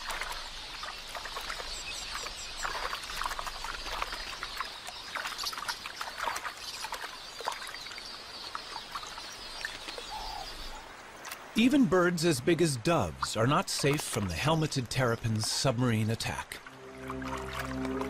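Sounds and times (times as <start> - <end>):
shallow water splashing: 0.0 - 18.0
faint high bird chirps: 0.3 - 10.9.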